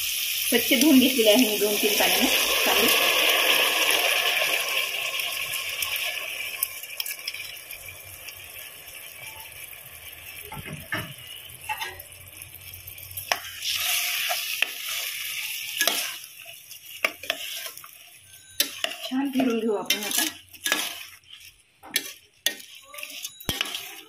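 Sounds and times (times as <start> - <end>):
food sizzling in oil: 0.0 - 24.0
metal spoon scraping a pot: 13.1 - 24.0.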